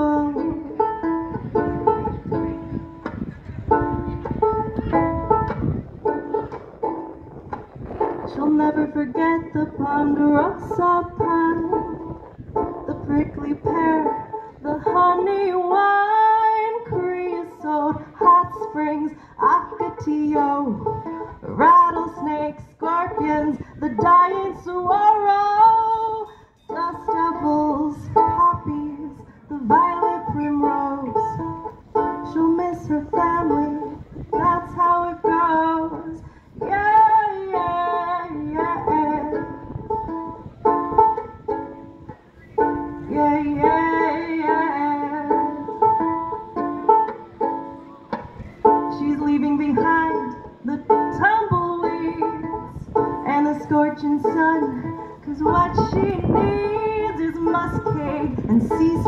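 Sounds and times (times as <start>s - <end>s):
woman singing: 0.0s - 1.4s, 8.2s - 39.6s, 42.9s - 46.3s, 48.8s - 59.0s
banjolele playing folk song: 0.0s - 59.0s.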